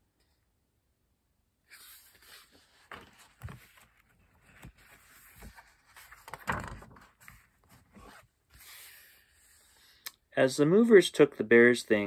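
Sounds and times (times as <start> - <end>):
paper rustling: 1.7 - 9.3.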